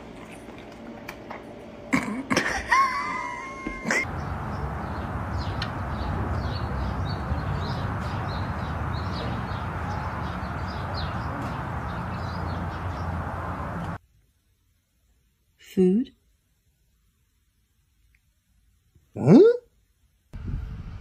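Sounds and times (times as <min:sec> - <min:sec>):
small birds chirping: 0:04.1 - 0:14.0
low hum: 0:20.4 - 0:21.0.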